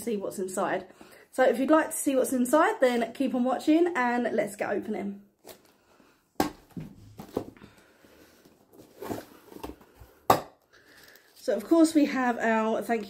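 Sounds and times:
cardboard rustling and scraping: 8.3 - 10.2.

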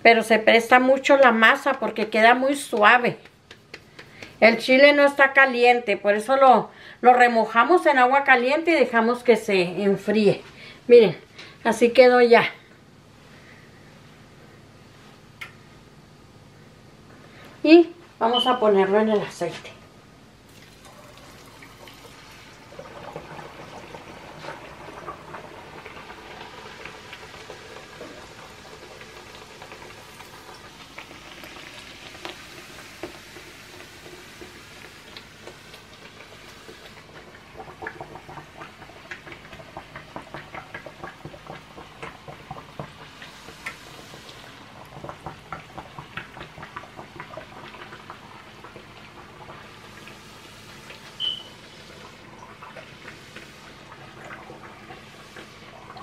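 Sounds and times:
dough frying in hot oil: 20.4 - 56.0.

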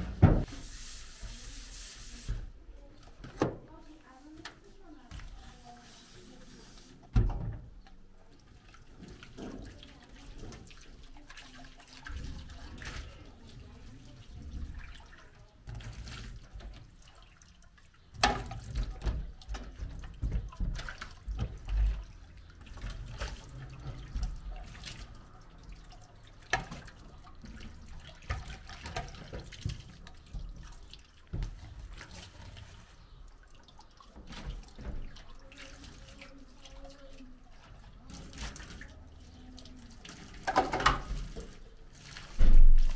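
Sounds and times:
dishes clattering in sink: 0.0 - 0.6, 18.1 - 24.6, 40.3 - 41.6
tap water running and splashing: 0.0 - 42.9.

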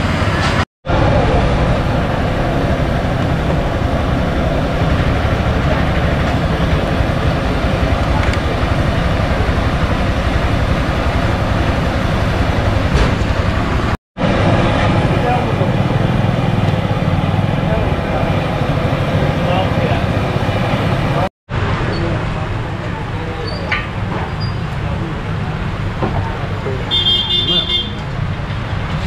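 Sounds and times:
low rumble: 0.0 - 21.3.

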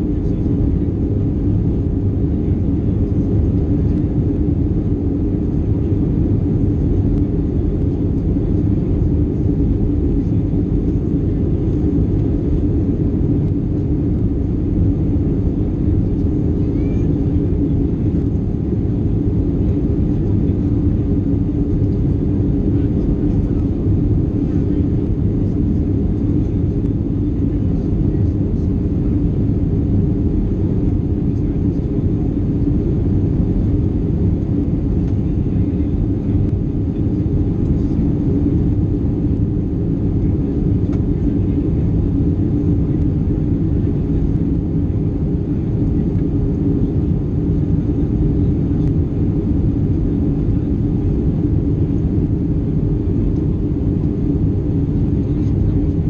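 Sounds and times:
airplane cabin engine rush: 0.0 - 56.0
faint high whine: 13.2 - 43.2.

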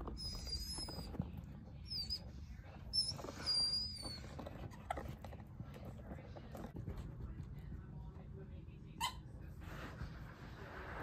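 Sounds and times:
rubber toy squeaking: 0.0 - 2.3, 2.9 - 5.1
dog chewing toy: 0.0 - 6.8.

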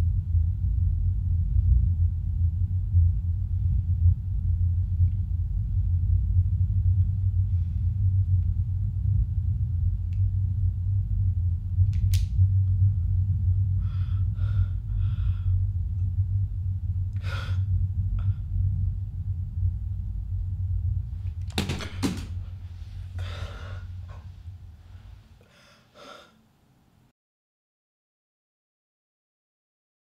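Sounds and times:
low rumbling drone: 0.0 - 26.0
woman gasping: 23.1 - 24.2, 25.4 - 26.4.

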